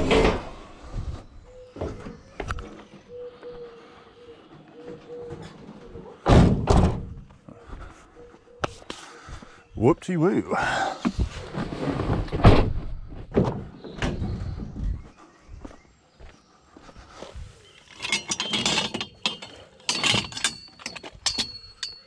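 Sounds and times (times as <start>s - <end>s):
van door shutting: 6.2s - 7.2s
footsteps: 11.0s - 17.6s
metal frame clattering: 17.9s - 22.0s
thin metallic ring: 17.9s - 22.0s.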